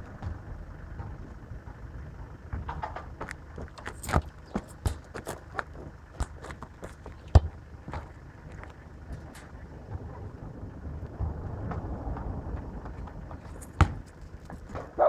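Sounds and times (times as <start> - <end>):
steady low rumble: 0.0 - 15.0
sharp clicks and knocks: 1.0 - 9.6.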